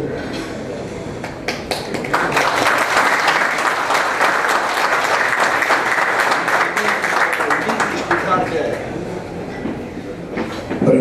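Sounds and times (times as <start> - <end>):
audience applauding: 1.3 - 8.9.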